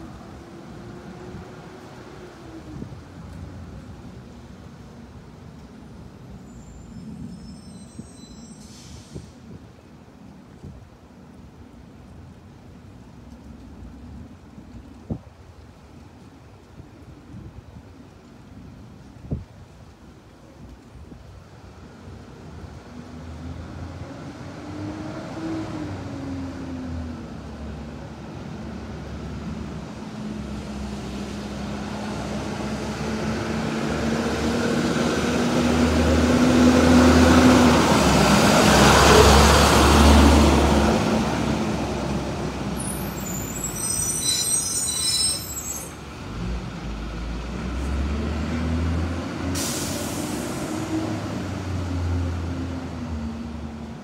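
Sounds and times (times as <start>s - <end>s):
brief high squeal: 6.5s - 9.4s, 42.8s - 46.0s
bus diesel engine passing: 22.4s - 44.9s, 45.5s - 54.0s.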